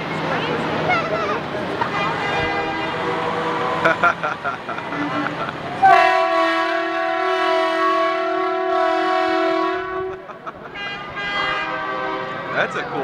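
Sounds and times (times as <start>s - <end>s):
truck air horn blast: 1.9s - 3.9s, 4.9s - 12.9s.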